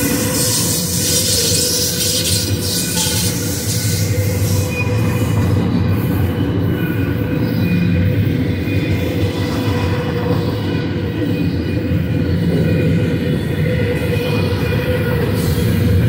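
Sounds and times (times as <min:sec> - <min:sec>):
thin high whine: 0:00.0 - 0:05.5.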